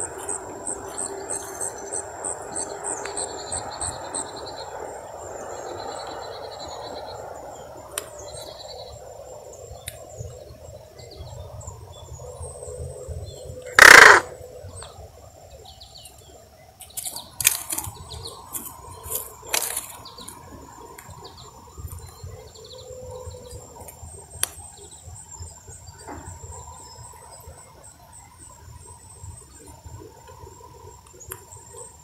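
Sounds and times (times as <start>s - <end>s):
crow cawing: 13.8s - 14.3s
sharp clicks: 13.8s - 14.3s.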